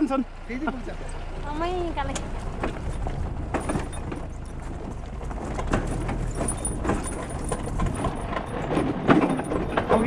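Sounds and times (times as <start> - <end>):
motorbike engine rumble: 0.0 - 10.0
motorbike rattling over rocks: 2.0 - 10.0.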